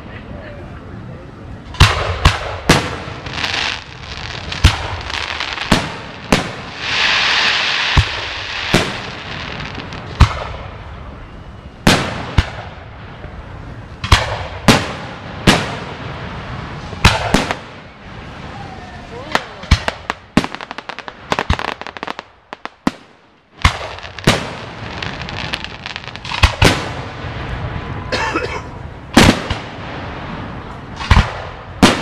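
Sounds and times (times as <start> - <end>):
fireworks booming: 1.6 - 32.0
fireworks hiss: 2.7 - 10.2.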